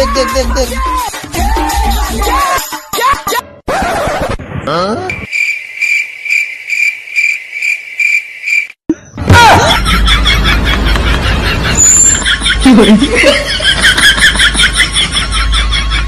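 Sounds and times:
cricket chirping: 5.2s - 8.8s.

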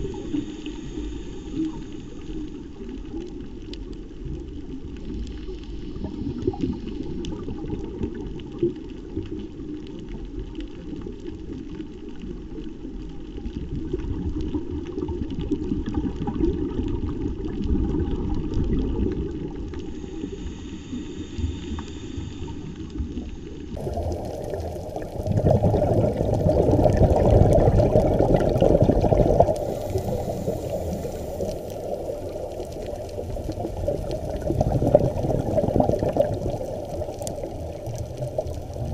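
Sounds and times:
muffled underwater rumble: 0.0s - 38.9s
regulator bubbles burbling: 23.7s - 38.9s.

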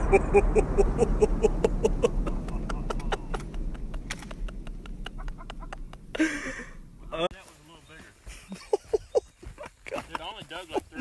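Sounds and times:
explosion low rumble: 0.0s - 7.4s
debris pattering down: 0.0s - 7.9s.

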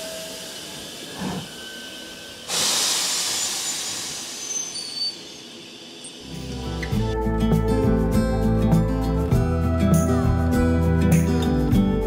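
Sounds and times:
steam locomotive hissing: 0.0s - 6.3s.

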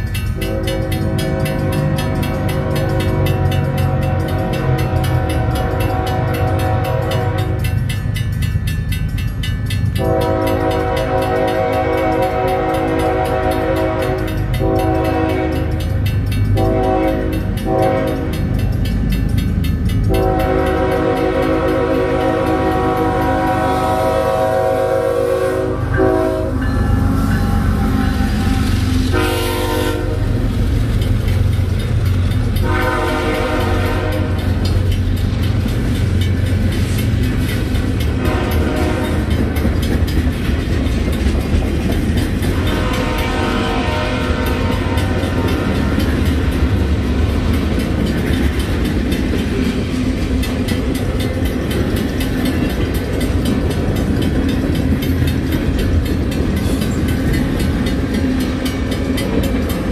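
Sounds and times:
crossing bell ringing: 0.0s - 59.9s
low rumble of train: 0.0s - 59.9s
train wheels clacking on rails: 0.0s - 59.9s
locomotive air horn blasts: 0.4s - 7.8s, 10.0s - 15.9s, 16.5s - 18.4s, 20.1s - 30.5s, 32.6s - 34.6s, 38.1s - 39.3s, 42.5s - 45.9s.

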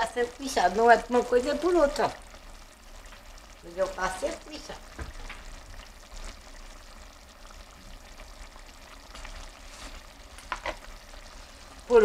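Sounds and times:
meat sauce sizzling in a pot: 0.0s - 12.0s.

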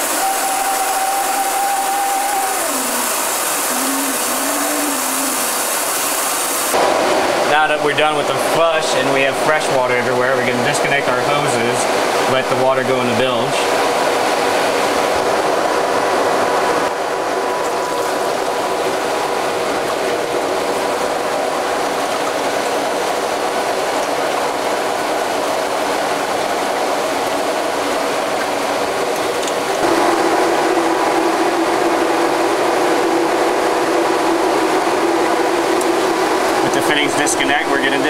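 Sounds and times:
machinery drone: 0.0s - 13.5s, 29.8s - 38.0s
faint steady hum: 0.0s - 38.0s.

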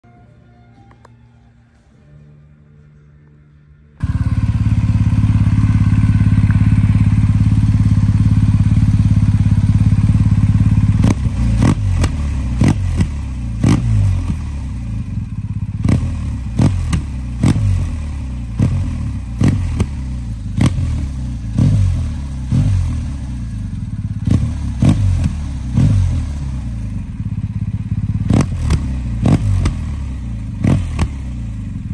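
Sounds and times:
exhaust cracks: 4.0s - 17.7s
motorcycle engine revving: 4.0s - 31.9s.

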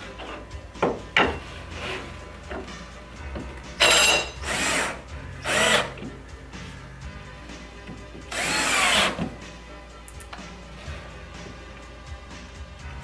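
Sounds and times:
cordless drill driving screw: 3.8s - 6.0s, 8.3s - 9.2s.

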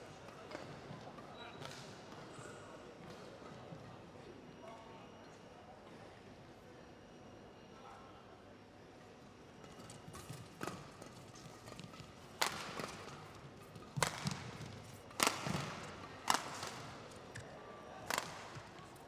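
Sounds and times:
shuttlecock struck by racket: 11.7s - 18.8s.

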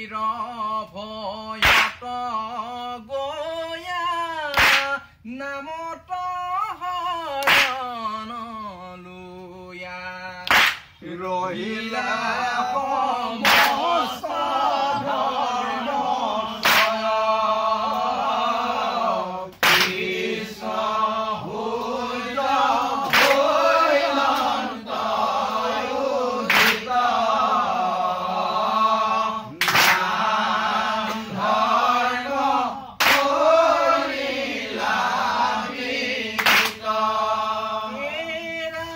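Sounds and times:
group chanting in unison: 1.5s - 2.7s, 4.5s - 5.1s, 7.4s - 7.8s, 10.4s - 38.9s
sharp hand claps: 1.6s - 2.1s, 4.5s - 5.0s, 7.4s - 8.0s, 10.4s - 11.0s, 13.4s - 14.0s, 16.6s - 17.2s, 19.5s - 20.2s, 22.8s - 24.6s, 26.4s - 27.0s, 29.6s - 30.3s, 31.0s - 31.3s, 33.0s - 33.5s, 36.4s - 37.0s.

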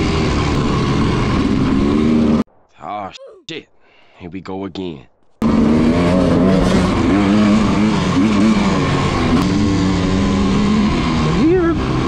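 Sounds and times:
dirt bike engine revving: 0.0s - 2.4s, 5.4s - 12.0s.

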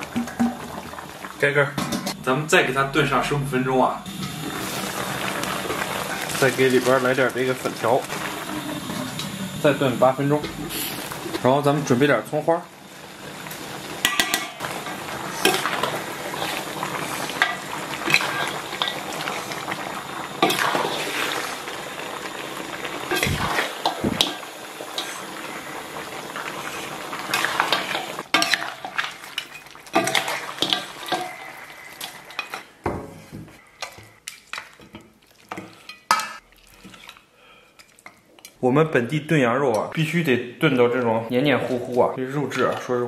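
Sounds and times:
steady sizzle: 0.0s - 38.6s
metal ladle scraping steel wok: 14.0s - 19.6s.

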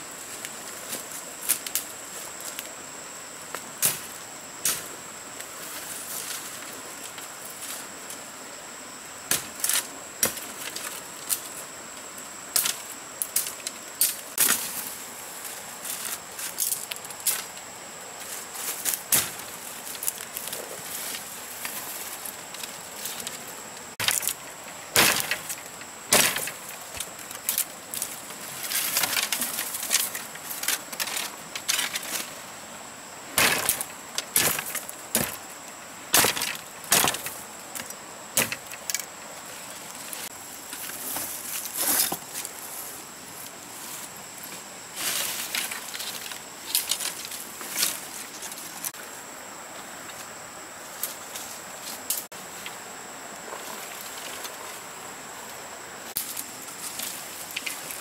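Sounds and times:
machete chopping through branches: 18.9s - 19.5s, 24.0s - 27.1s, 33.4s - 35.4s.

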